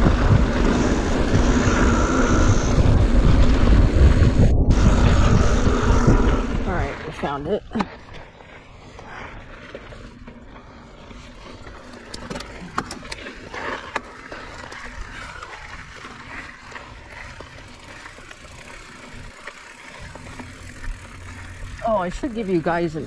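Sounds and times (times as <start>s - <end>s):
bike tyres rumbling on dirt: 0.0s - 23.0s
bike clicks and rattles: 7.7s - 23.0s.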